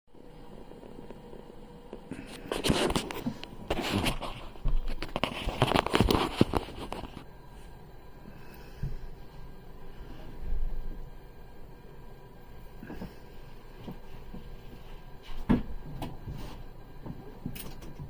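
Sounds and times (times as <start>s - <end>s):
phone handling rubbing and clicking: 2.3s - 7.3s.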